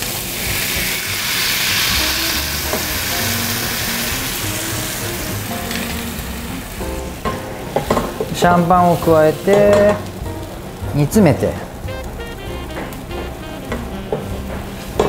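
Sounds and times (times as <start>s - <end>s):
liquid sizzling in a hot pan: 0.0s - 11.0s.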